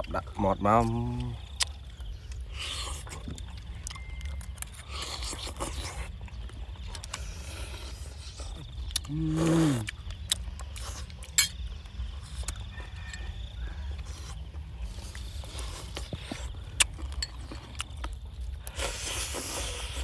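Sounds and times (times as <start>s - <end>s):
person chewing: 0.9s - 20.0s.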